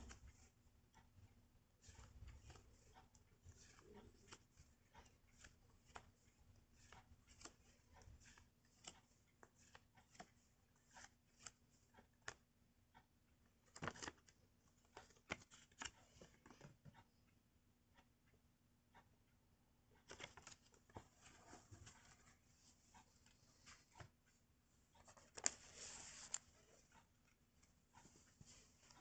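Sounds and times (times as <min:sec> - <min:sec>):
paper rustling and tapping: 0:01.8 - 0:12.4, 0:13.7 - 0:17.0, 0:20.0 - 0:22.2, 0:25.0 - 0:26.5.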